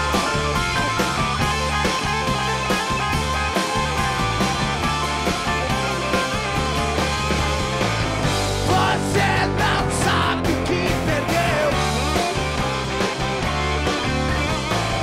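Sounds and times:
rock band playing live: 0.0 - 15.0
man singing: 8.6 - 12.2.

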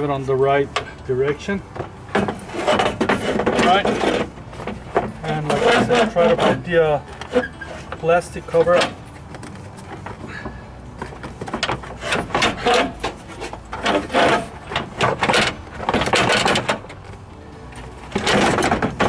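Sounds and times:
plastic scraping on plastic: 1.8 - 10.3, 11.0 - 17.1.

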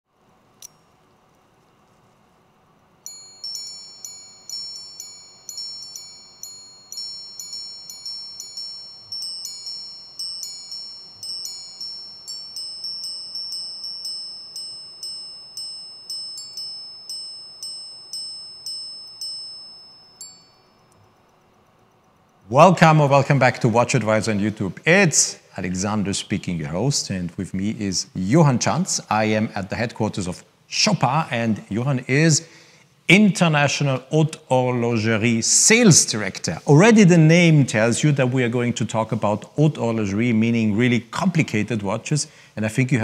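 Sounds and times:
watch chiming on gongs: 3.1 - 20.9.

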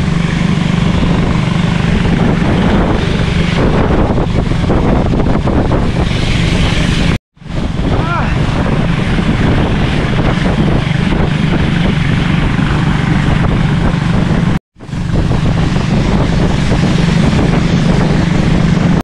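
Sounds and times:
boat engine running: 0.0 - 19.0
water rushing along hull: 0.0 - 19.0
wind on microphone: 0.0 - 19.0.

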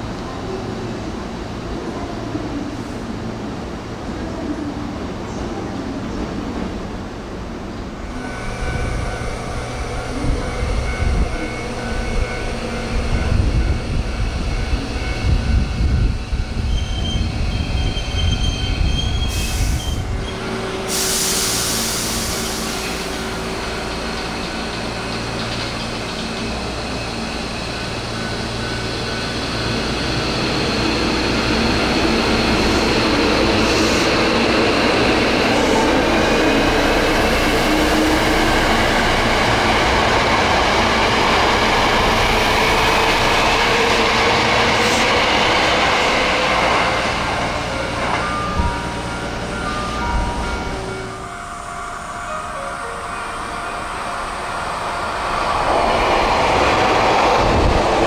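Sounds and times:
electric train rumble: 0.0 - 58.0
air hiss: 19.3 - 20.0, 20.8 - 23.2.

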